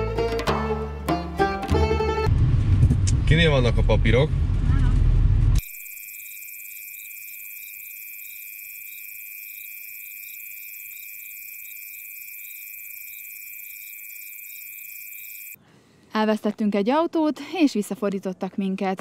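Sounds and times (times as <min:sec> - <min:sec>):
high-pitched electronic beep: 0:05.6 - 0:15.6.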